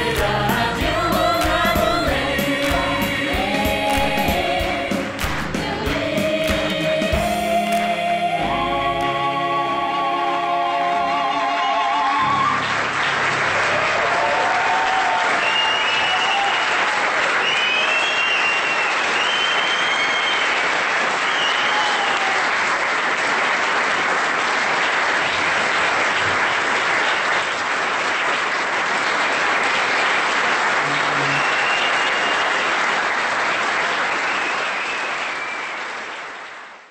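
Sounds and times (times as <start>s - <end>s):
audience applauding: 0.0s - 8.0s, 11.2s - 36.9s
short high whistles: 15.4s - 16.6s, 17.4s - 20.6s, 21.2s - 22.2s, 31.2s - 32.6s, 34.2s - 35.8s.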